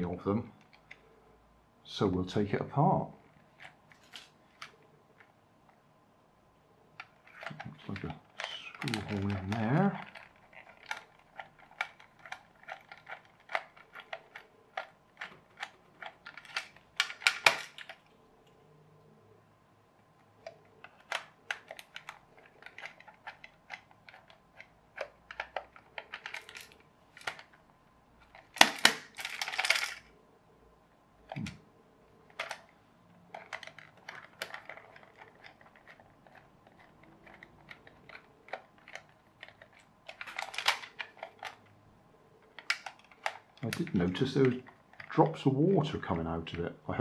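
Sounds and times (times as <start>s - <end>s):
screwdriver clicking and scraping plastic: 7.0s - 18.1s, 20.3s - 27.6s, 32.3s - 41.8s, 42.4s - 45.3s.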